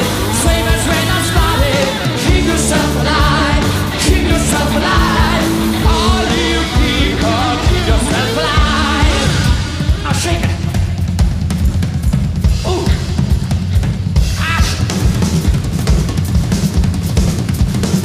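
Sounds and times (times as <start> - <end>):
electric guitar: 0.0 - 10.1
man singing: 0.0 - 10.8
bass guitar: 0.0 - 18.0
drums: 0.0 - 18.0.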